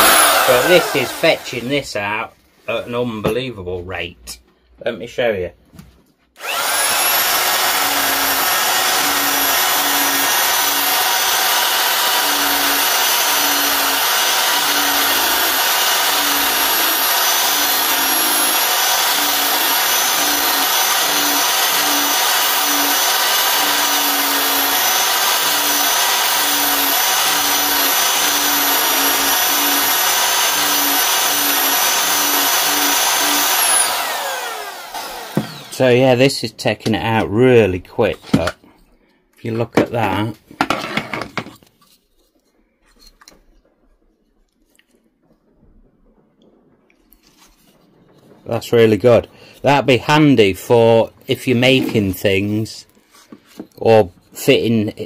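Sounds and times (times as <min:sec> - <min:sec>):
belt sander whining: 0:00.0 - 0:01.8, 0:06.4 - 0:36.2
belt sanding wood: 0:00.0 - 0:01.8, 0:06.4 - 0:35.8.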